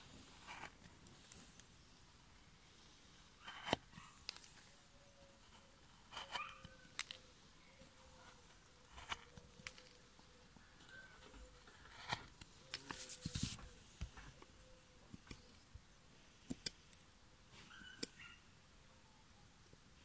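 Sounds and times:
gouge carving wood clicks and scrapes: 0:00.3 - 0:01.7, 0:03.1 - 0:14.5, 0:15.1 - 0:15.7, 0:16.4 - 0:17.0.

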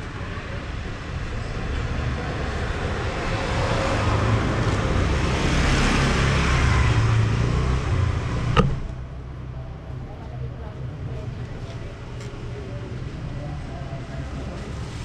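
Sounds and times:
vehicle engine and road noise: 0:00.0 - 0:15.0.

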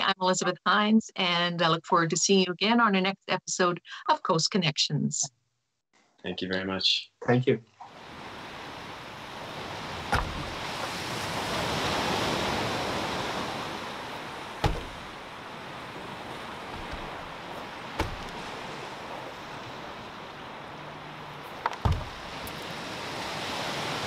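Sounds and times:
small waves on pebble beach: 0:07.9 - 0:24.0
short knocks: 0:10.1 - 0:10.6, 0:14.6 - 0:15.1, 0:16.7 - 0:17.3, 0:18.0 - 0:18.5.

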